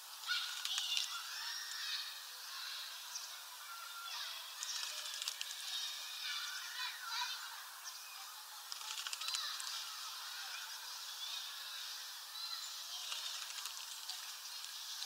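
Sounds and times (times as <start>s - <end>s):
birds calling and singing: 0.0s - 15.0s
bird splashing in water: 4.6s - 5.6s, 13.0s - 14.4s.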